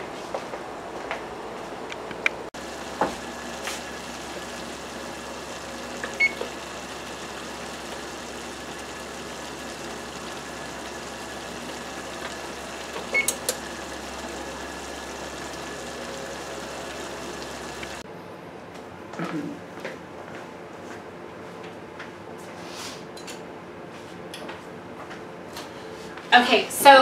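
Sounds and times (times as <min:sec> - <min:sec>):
oven control panel beeps: 0:06.0 - 0:06.6, 0:13.1 - 0:13.6.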